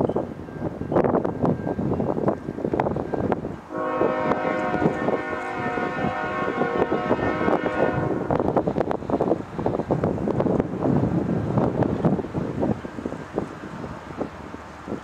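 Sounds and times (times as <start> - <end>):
wind buffeting microphone: 0.0 - 15.0
locomotive air horn blast: 3.7 - 8.5.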